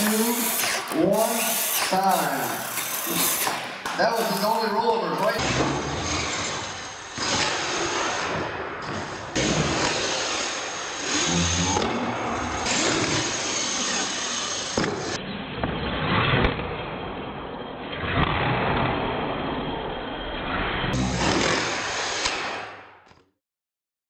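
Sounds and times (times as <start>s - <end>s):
tyres scrubbing on concrete: 0.0s - 5.4s
toy truck motors whining: 0.0s - 8.4s, 9.0s - 15.2s.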